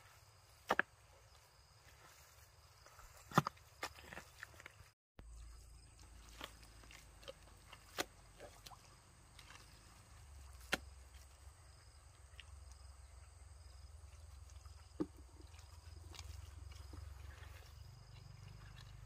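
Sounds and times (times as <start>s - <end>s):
hands digging through wet mud: 6.0s - 11.4s, 14.2s - 19.0s.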